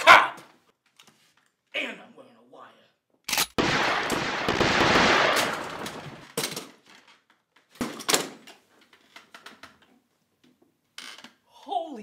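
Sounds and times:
gunshots: 3.4 - 6.4.

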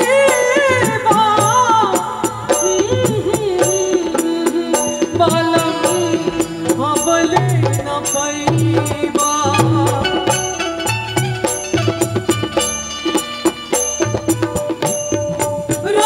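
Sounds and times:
woman singing into a microphone: 0.0 - 11.0, 15.3 - 16.0
live band accompaniment: 0.0 - 16.0
steady percussion beat: 0.0 - 16.0.

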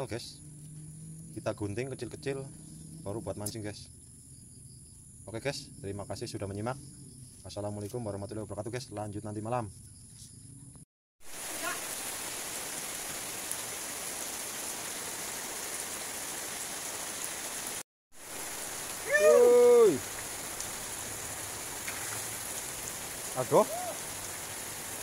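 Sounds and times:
heavy rain: 11.3 - 25.0
person calling out: 19.0 - 20.0, 23.4 - 24.0.

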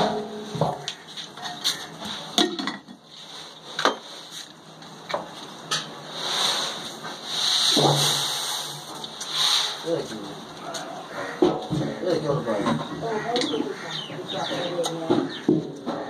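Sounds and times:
steady hiss: 6.0 - 10.3.

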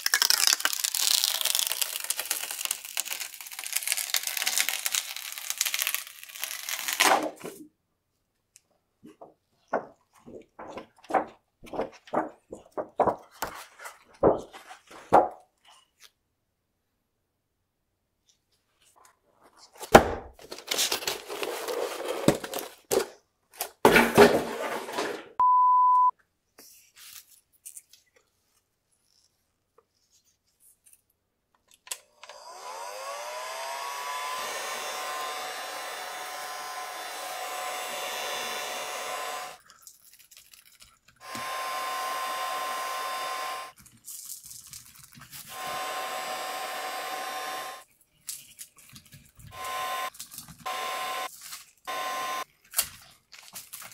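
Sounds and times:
steady beep: 25.4 - 26.1
heat gun fan whining: 32.2 - 39.6, 41.2 - 43.7, 45.5 - 47.8, 49.5 - 50.1, 50.7 - 51.3, 51.9 - 52.4.

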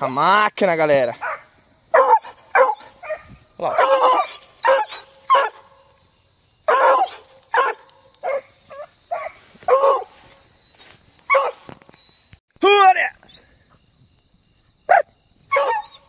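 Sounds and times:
dog barking: 1.2 - 5.7, 6.7 - 10.2, 11.3 - 11.6, 14.9 - 16.0.

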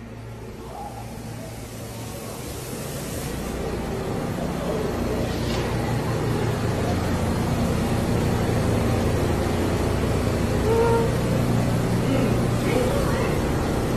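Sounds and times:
subway train rumble and hum: 0.0 - 13.9.

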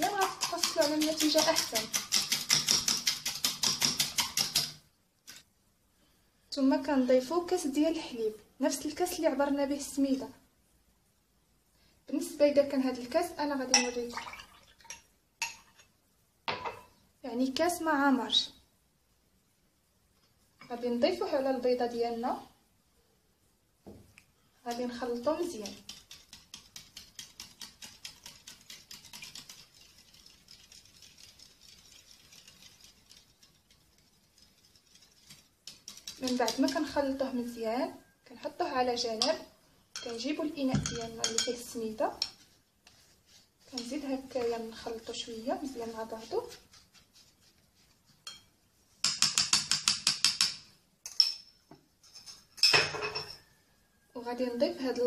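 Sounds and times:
whisk clicking against bowl: 0.0 - 4.8, 24.7 - 37.2, 48.2 - 51.2
spatula clinking against glass: 40.8 - 41.6, 48.2 - 50.5.

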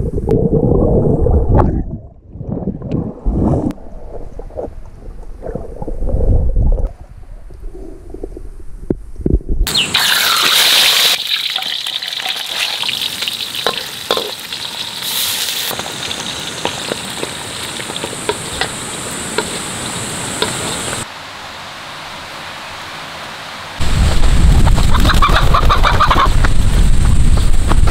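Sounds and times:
fish frying in hot oil: 10.0 - 21.0.

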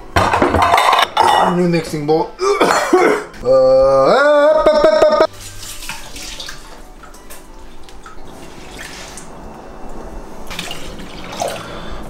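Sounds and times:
faucet running water: 5.3 - 9.5, 10.4 - 12.0.

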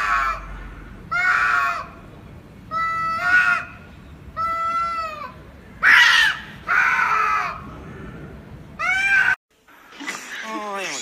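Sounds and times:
cats yowling and screeching: 0.0 - 0.5, 4.4 - 7.7, 8.8 - 9.4.

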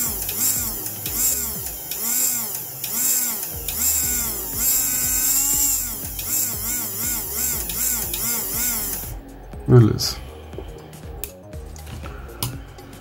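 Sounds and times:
small electric motor humming: 0.0 - 9.2.

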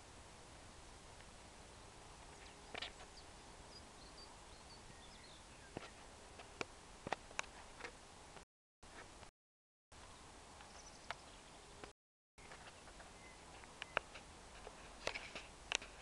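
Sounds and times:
outdoor background hiss: 0.0 - 9.3, 10.0 - 16.0.

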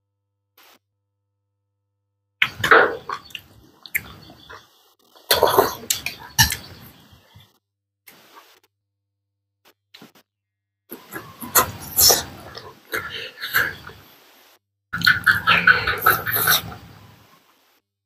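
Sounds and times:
chewing: 2.4 - 4.6, 5.2 - 7.4, 10.9 - 14.0, 15.0 - 17.1
loud slurps: 10.9 - 14.0, 15.0 - 17.0.

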